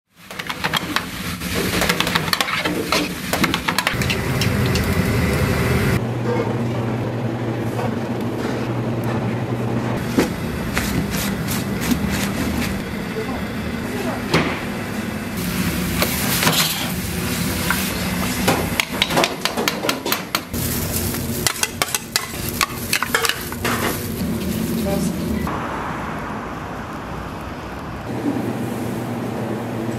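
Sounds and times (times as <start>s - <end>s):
vegetables sizzling in a wok: 0.1s - 6.0s, 15.3s - 19.1s, 19.7s - 25.6s
utensils clicking and scraping pans: 0.2s - 5.0s, 16.0s - 25.2s
spatula scraping a pan: 0.4s - 4.2s
boiling water rumble: 3.4s - 29.9s.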